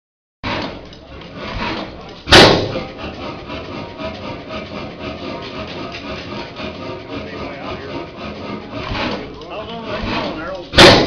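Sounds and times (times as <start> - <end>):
engine firing bang: 1.5 - 3.0, 10.0 - 11.0.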